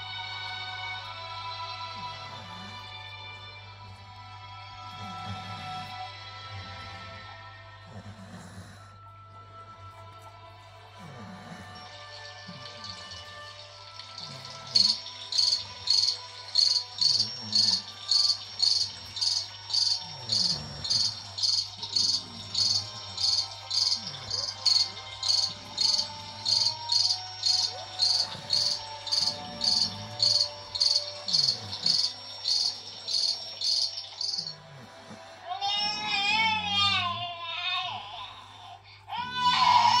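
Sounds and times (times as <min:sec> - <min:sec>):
cricket chirping: 0:12.8 - 0:34.7.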